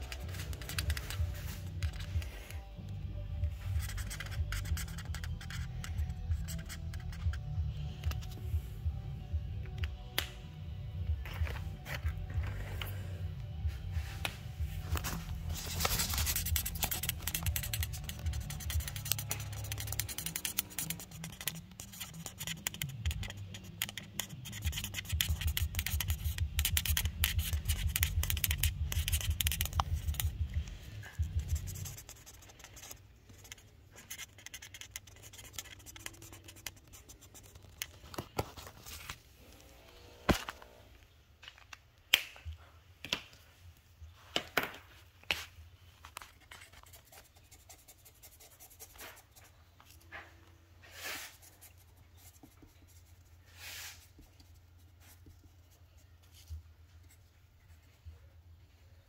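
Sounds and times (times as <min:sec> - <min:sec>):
pen scratching on paper: 0:03.7 - 0:07.4, 0:15.5 - 0:30.5, 0:31.1 - 0:37.7, 0:46.4 - 0:49.4.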